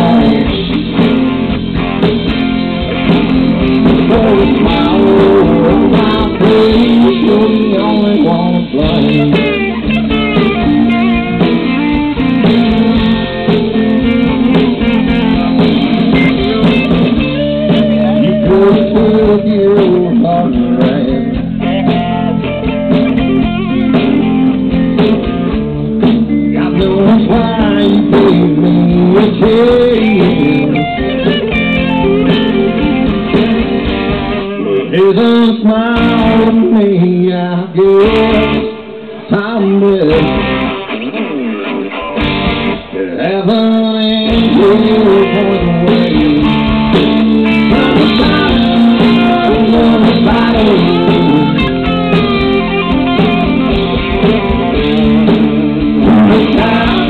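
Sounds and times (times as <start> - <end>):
electric guitars: 0.0 - 57.0
live band playing amplified music: 0.0 - 57.0.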